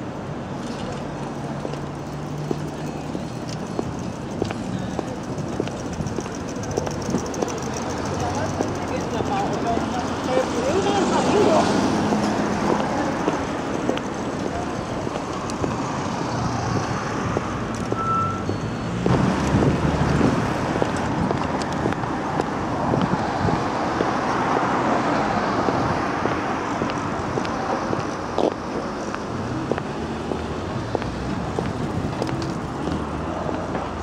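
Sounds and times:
cars passing: 0:00.0 - 0:34.0
loud vehicle passing: 0:01.2 - 0:17.7, 0:18.6 - 0:28.0.

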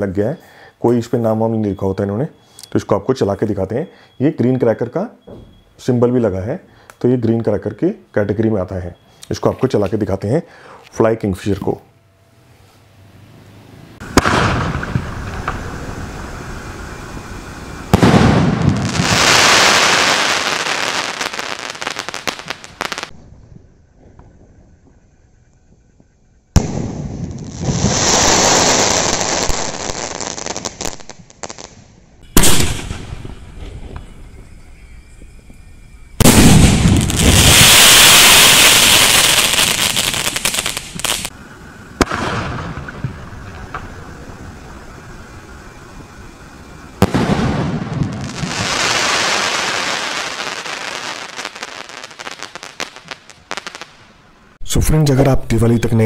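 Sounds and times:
crackling pops: 0:14.0 - 0:15.9
sharp crack: 0:14.0 - 0:16.4, 0:17.9 - 0:19.1, 0:28.9 - 0:34.6, 0:36.2 - 0:41.4, 0:42.0 - 0:44.6, 0:47.0 - 0:54.1
firework bang: 0:14.0 - 0:23.2, 0:26.6 - 0:30.9, 0:32.2 - 0:41.3, 0:42.0 - 0:53.9
firework shell rushing hiss: 0:14.0 - 0:23.2, 0:26.6 - 0:54.0.

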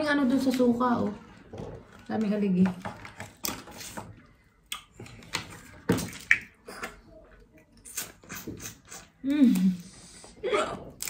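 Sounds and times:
wet slurping and sucking: 0:07.8 - 0:10.4.

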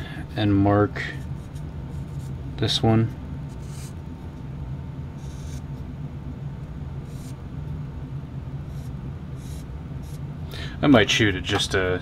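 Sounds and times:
steady low hum: 0:00.0 - 0:12.0
marker scratching on metal: 0:03.5 - 0:04.0, 0:05.2 - 0:05.7, 0:07.0 - 0:07.4, 0:08.6 - 0:10.2.

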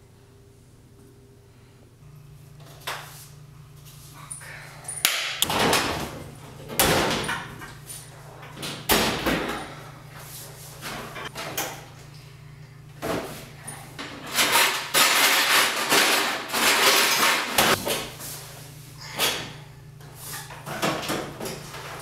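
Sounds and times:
low steady hum: 0:00.0 - 0:15.5.

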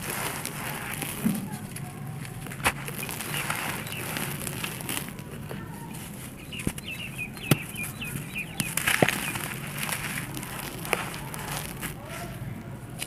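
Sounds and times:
chunks cracking: 0:00.0 - 0:13.0
soil crumbling in hands: 0:00.0 - 0:13.0
bird cheeping: 0:06.4 - 0:09.5.

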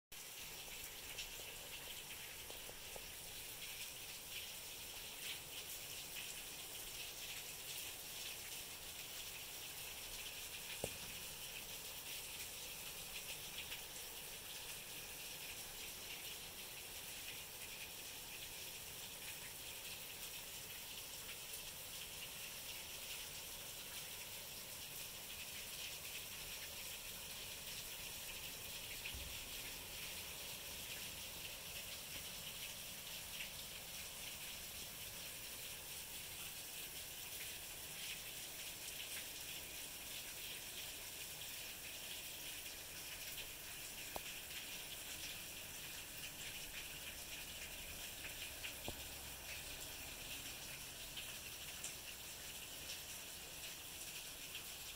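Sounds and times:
rain splashing on concrete: 0:00.1 - 0:54.9.

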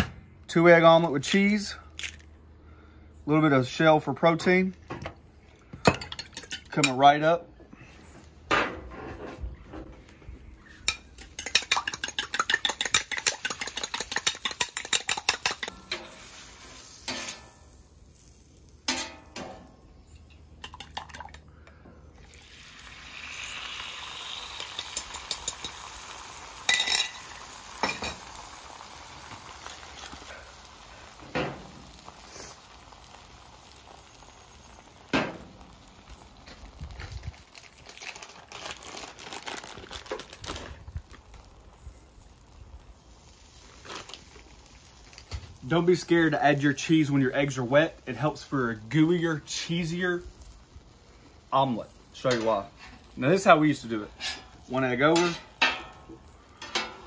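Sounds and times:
eggs sizzling on a griddle: 0:10.5 - 0:21.4, 0:22.0 - 0:57.0
fork whisking eggs in a bowl: 0:11.2 - 0:15.7.

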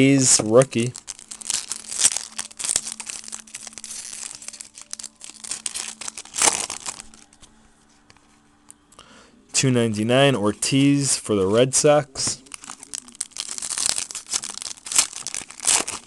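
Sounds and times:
foil wrapper crinkling and tearing: 0:00.0 - 0:07.4, 0:12.2 - 0:16.0.

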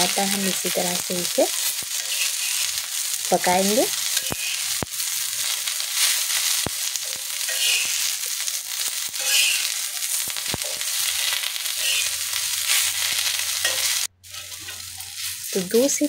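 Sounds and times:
vegetables sizzling in oil: 0:00.0 - 0:16.0
metal spatula tapping and scraping pan: 0:13.6 - 0:15.1.

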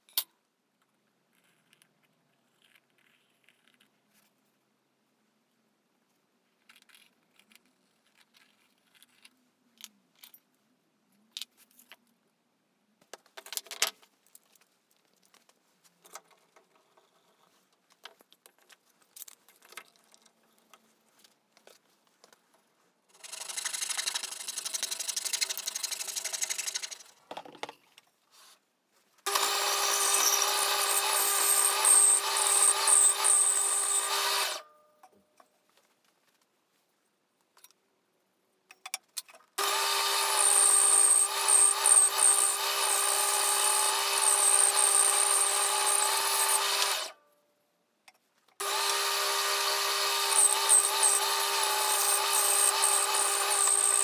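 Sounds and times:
bandsaw cutting wood: 0:29.3 - 0:34.6, 0:39.6 - 0:47.2, 0:48.6 - 0:54.0
power tool running: 0:29.3 - 0:34.6, 0:39.6 - 0:47.2, 0:48.6 - 0:54.0.

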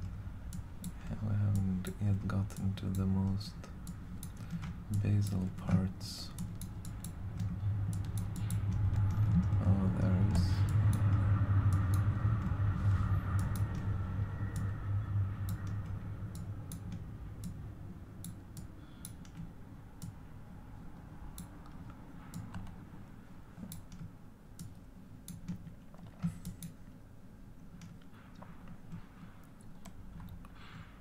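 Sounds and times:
low hum: 0:00.0 - 0:31.0
mouse and keyboard clicks: 0:02.6 - 0:09.8.

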